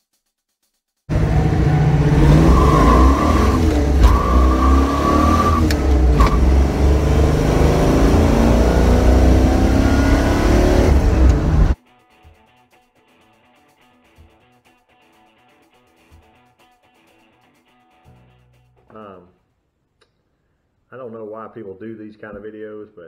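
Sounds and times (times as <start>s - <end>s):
car engine accelerating: 1.1s - 11.8s
gear shifter clicks: 5.6s - 6.6s, 11.0s - 11.7s.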